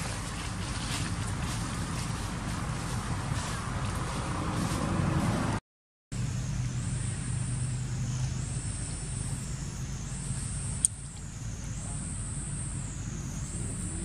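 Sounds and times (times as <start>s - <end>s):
low rumble of traffic: 0.0s - 14.0s
high-pitched drone: 6.2s - 14.0s
sharp click: 10.8s - 11.3s.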